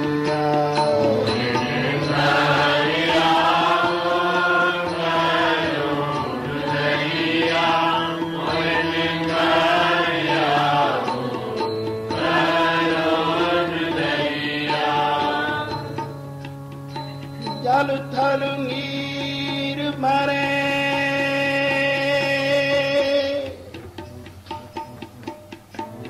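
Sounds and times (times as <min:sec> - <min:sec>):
harmonium drone: 0:00.0 - 0:26.0
man singing a hymn: 0:17.6 - 0:23.6.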